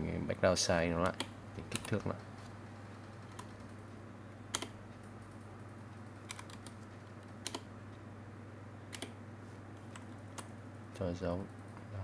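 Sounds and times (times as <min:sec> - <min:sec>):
steady low hum: 0:00.0 - 0:12.0
keyboard keystrokes clicking: 0:01.0 - 0:02.1, 0:03.2 - 0:03.7, 0:04.5 - 0:04.8, 0:06.2 - 0:06.8, 0:07.4 - 0:07.7, 0:08.9 - 0:09.2.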